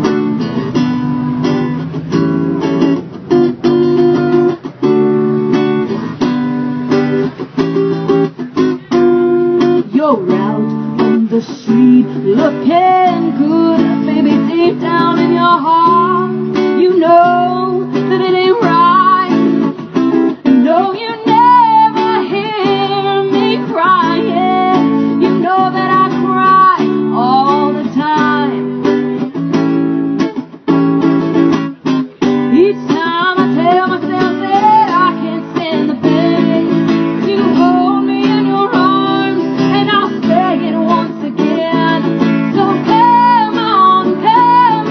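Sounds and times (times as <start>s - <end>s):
acoustic guitar strumming: 0.0s - 44.9s
person singing: 8.8s - 19.6s, 20.3s - 29.4s, 32.5s - 44.9s.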